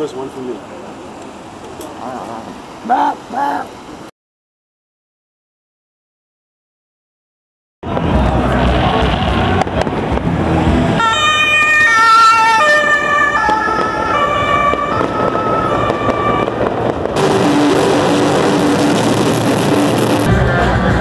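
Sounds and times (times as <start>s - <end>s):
fireworks crackling: 7.8s - 10.8s, 13.3s - 20.7s
two-tone police siren: 10.9s - 20.2s.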